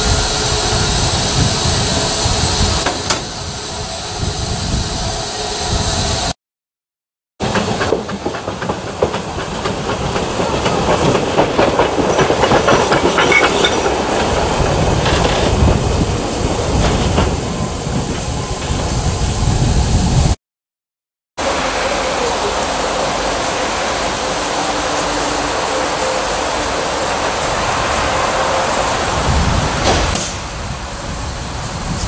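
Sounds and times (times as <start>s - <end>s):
steady steam hiss: 0.0s - 6.4s, 21.4s - 32.0s
wheels clicking over rail joints: 7.4s - 19.1s
steam locomotive chuffing: 7.4s - 19.9s, 21.4s - 30.7s.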